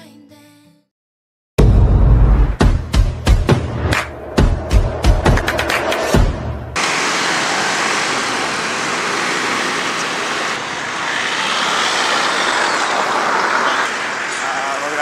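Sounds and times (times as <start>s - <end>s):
traffic passing close by: 4.0s - 15.0s.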